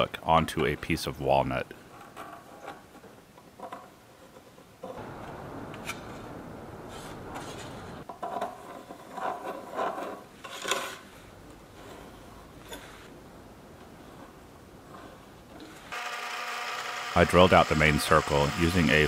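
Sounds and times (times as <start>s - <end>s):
stencils scraping and rubbing: 5.8s - 13.2s.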